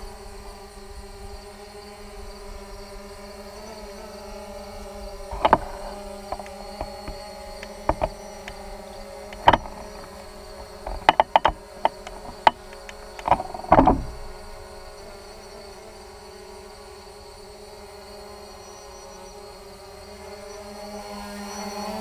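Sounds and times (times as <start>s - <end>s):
drone motors humming: 3.8s - 17.6s
knocks and rattles: 5.3s - 15.0s.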